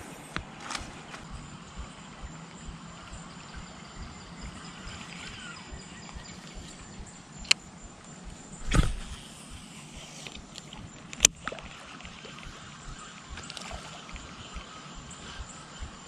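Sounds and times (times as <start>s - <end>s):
high-pitched insect drone: 0.0s - 16.0s
quiet outdoor ambience: 0.0s - 16.0s
sharp click: 4.8s - 7.7s, 8.6s - 11.6s
thump: 8.6s - 9.2s.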